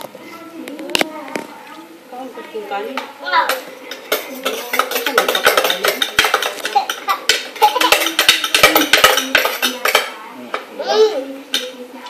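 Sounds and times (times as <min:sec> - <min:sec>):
spoons clinking on a plate: 0:03.9 - 0:10.2.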